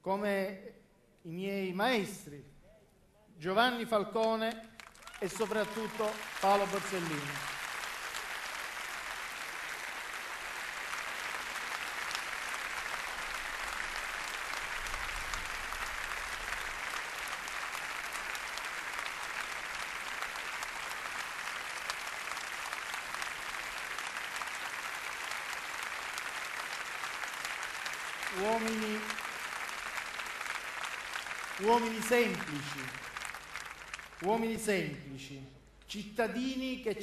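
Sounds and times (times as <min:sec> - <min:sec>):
large crowd applauding: 0:04.2 - 0:35.1.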